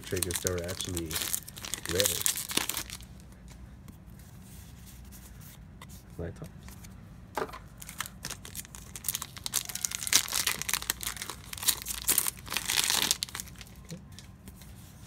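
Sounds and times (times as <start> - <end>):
wrapper tearing: 0.0 - 3.2, 7.8 - 13.9
wrapper crinkling: 0.0 - 3.3, 7.7 - 14.6.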